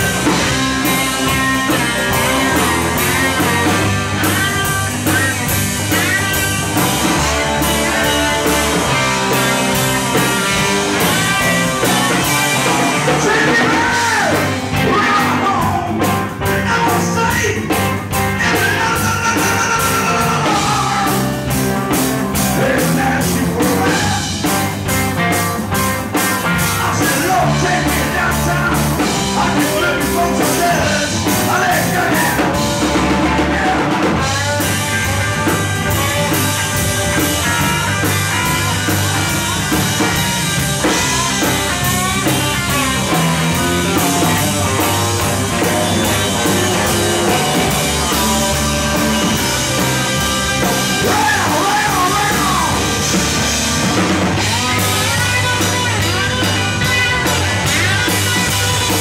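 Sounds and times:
blues-rock band playing: 0.0 - 59.0
harmonica bending notes: 34.2 - 59.0.

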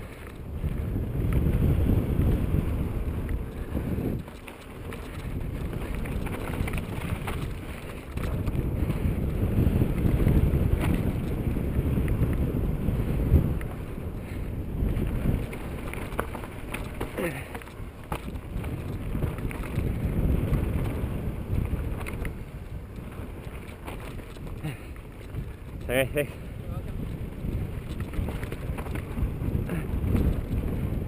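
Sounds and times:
bike tyres rumbling on dirt: 0.0 - 31.0
wind buffeting microphone: 0.0 - 31.0
bike knocking over bumps: 14.9 - 25.8, 27.0 - 31.0.

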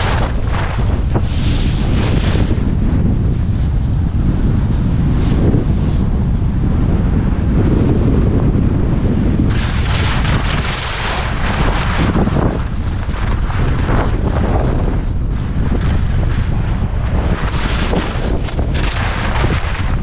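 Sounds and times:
skis hissing and scraping on snow: 0.0 - 3.2, 9.5 - 20.0
wind buffeting microphone: 0.0 - 20.0.

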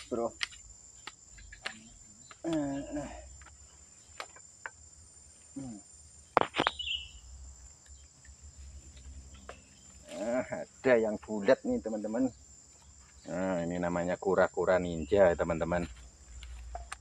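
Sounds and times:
high-pitched insect buzzing: 4.8 - 13.7.

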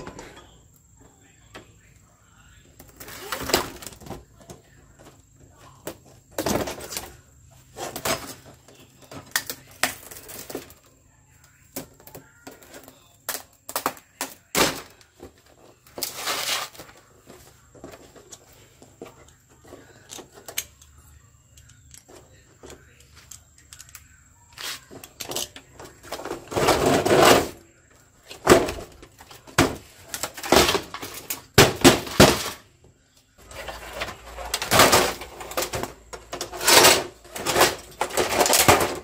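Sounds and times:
tv being taken apart: 33.4 - 39.0.

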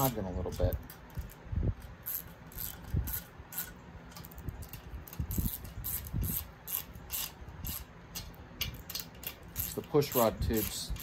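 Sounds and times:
hand ratchet clicking: 0.0 - 11.0.

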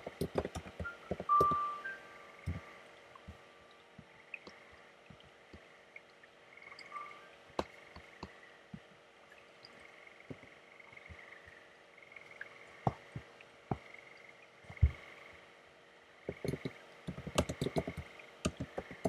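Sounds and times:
laptop keyboard keystrokes: 0.0 - 1.7, 16.3 - 19.0
faint background hiss: 0.0 - 19.0.

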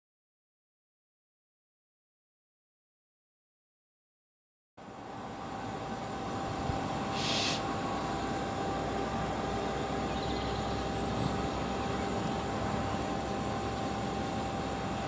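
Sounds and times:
diesel locomotive engine running: 4.8 - 15.0
brief hiss: 7.1 - 7.6.

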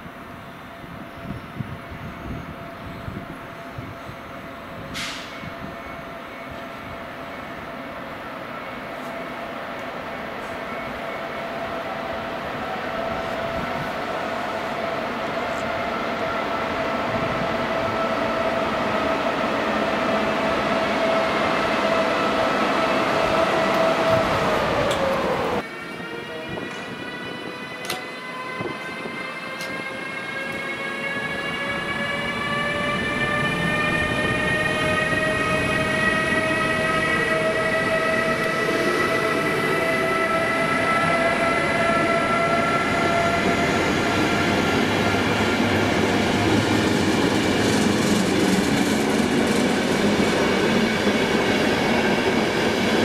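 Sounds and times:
wheels rumbling on rails: 43.2 - 52.5.

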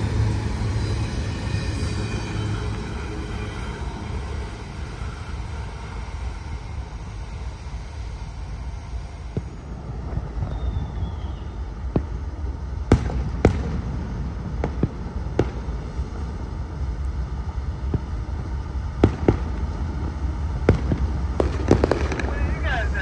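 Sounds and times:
low rumble: 0.0 - 23.0
fireworks bangs: 20.7 - 22.9.

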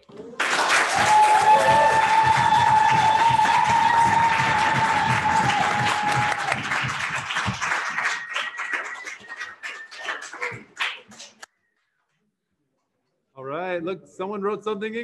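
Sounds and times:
audience applauding: 0.2 - 11.4.

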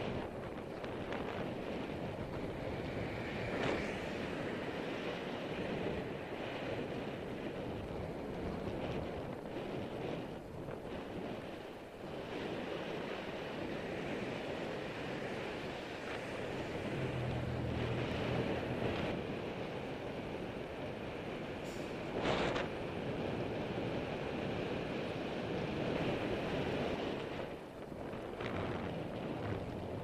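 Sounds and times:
bicycle tyre and road noise: 0.0 - 30.0
wind on microphone: 0.0 - 30.0
passing traffic engine hum: 1.5 - 7.4, 13.4 - 22.9.

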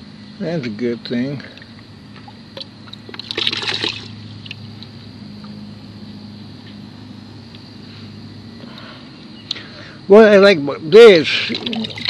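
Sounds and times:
water splashing and sloshing: 2.2 - 4.6, 11.4 - 12.0.

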